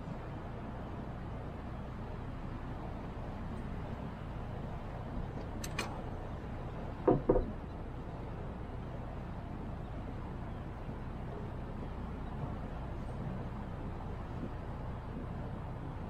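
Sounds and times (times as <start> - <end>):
steady low rumble: 0.0 - 16.0
loud knocks: 7.0 - 7.5.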